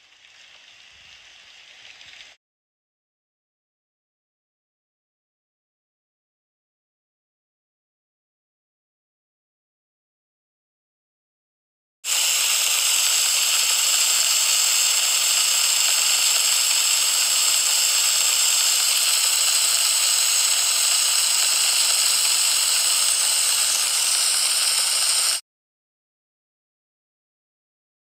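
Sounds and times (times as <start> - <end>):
pizzas sizzling in a metal pan: 0.0 - 2.4, 12.1 - 25.4.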